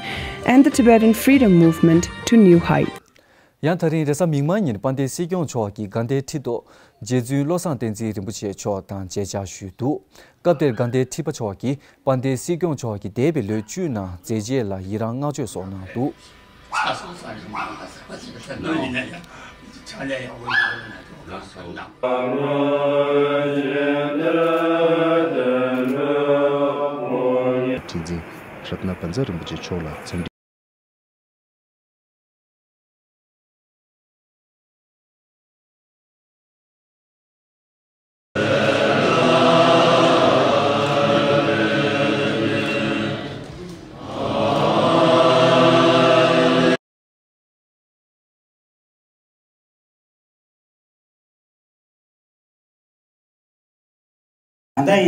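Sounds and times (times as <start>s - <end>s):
deep voice chanting: 22.0s - 28.2s, 38.4s - 46.8s.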